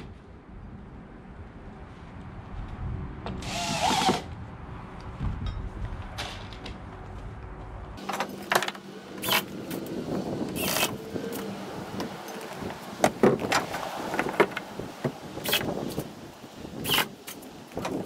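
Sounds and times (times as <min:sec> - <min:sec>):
cordless drill driving screws: 0:03.4 - 0:04.2, 0:09.2 - 0:09.8, 0:10.5 - 0:11.0, 0:16.8 - 0:17.2.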